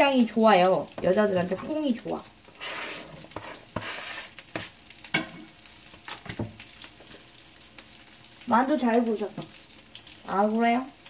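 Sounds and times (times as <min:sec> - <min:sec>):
rice sizzling in a frying pan: 0:00.0 - 0:11.0
spatula knocking and scraping pan: 0:00.9 - 0:01.9, 0:02.5 - 0:06.6.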